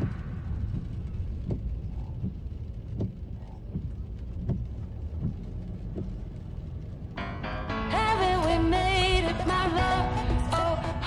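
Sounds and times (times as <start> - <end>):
faint rain taps: 0.0 - 7.5
road and engine rumble: 0.0 - 11.0.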